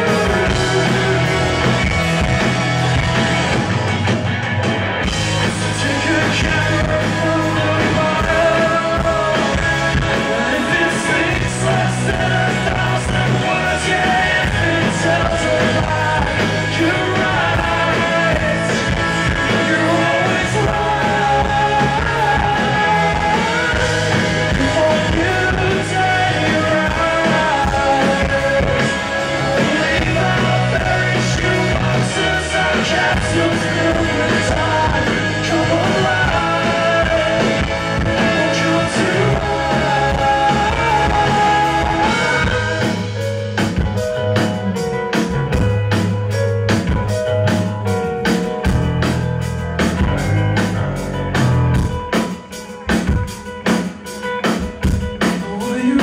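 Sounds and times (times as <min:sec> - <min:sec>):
man singing: 0:00.0 - 0:02.5, 0:05.3 - 0:43.4, 0:55.2 - 0:56.0
drums: 0:00.0 - 0:56.0
electric guitar: 0:00.0 - 0:56.0
keyboard: 0:00.0 - 0:56.0.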